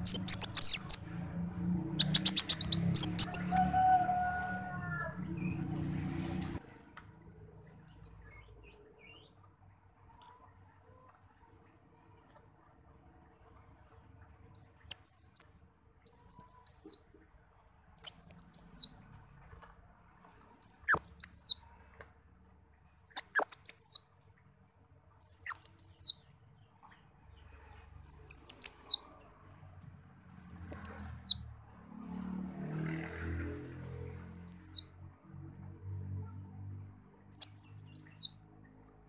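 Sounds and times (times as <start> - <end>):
sunbird chirping: 0.0 - 1.2, 1.9 - 3.9, 14.6 - 17.0, 18.0 - 19.0, 20.6 - 21.6, 23.1 - 24.0, 25.2 - 26.2, 28.0 - 29.1, 30.4 - 31.4, 33.9 - 34.8, 37.3 - 38.4.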